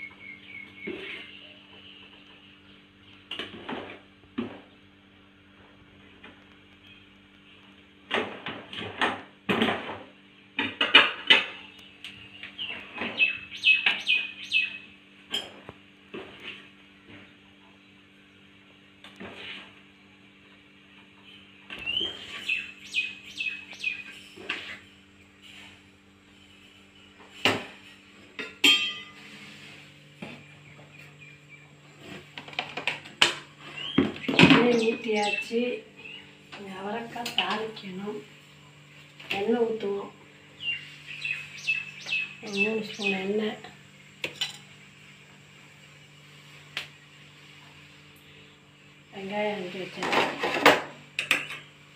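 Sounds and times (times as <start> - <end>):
steady low hum: 0.0 - 51.9
metal pot and lid clanking: 28.4 - 29.2.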